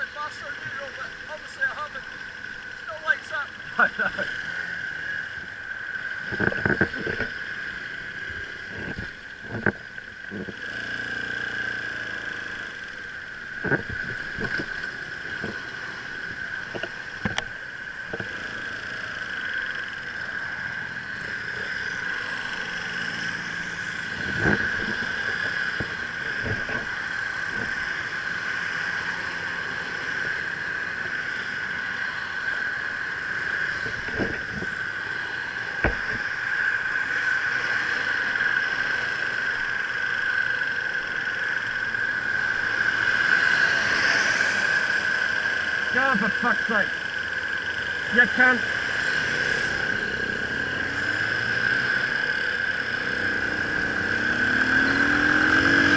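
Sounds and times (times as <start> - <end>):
motorcycles idling and moving off: 0.0 - 55.9
steady high whine: 0.0 - 55.9
wind noise: 5.4 - 10.9, 13.5 - 18.5, 24.0 - 27.9, 33.5 - 34.9.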